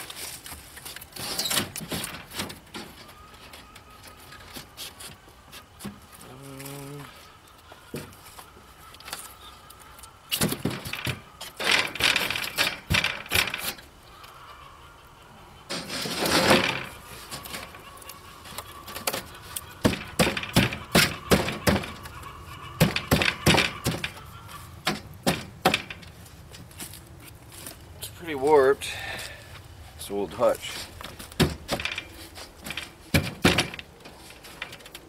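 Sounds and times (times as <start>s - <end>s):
wooden board scraping: 15.7s - 27.8s
wood knocking on wood: 19.8s - 22.1s, 24.8s - 26.0s.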